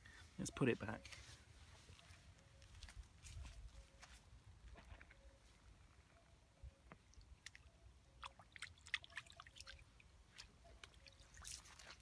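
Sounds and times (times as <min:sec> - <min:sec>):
small water splashes: 0:07.0 - 0:12.0.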